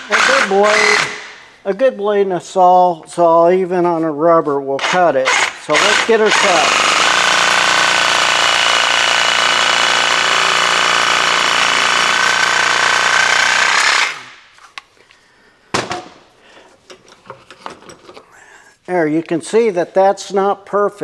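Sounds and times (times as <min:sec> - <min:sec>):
reciprocating saw cutting rubber: 0:00.0 - 0:01.3, 0:04.8 - 0:14.3.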